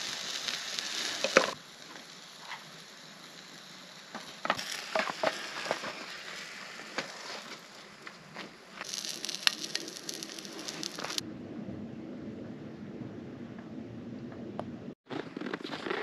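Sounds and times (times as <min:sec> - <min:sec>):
oil sizzling in a frying pan: 0:00.0 - 0:08.0, 0:08.7 - 0:11.2
utensils clicking and knocking: 0:01.2 - 0:01.6.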